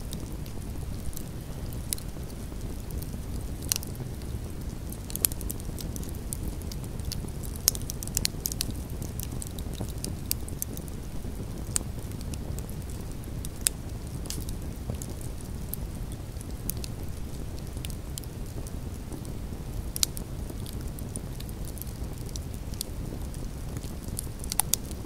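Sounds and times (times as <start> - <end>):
wood logs crackling and popping: 0.0 - 25.0.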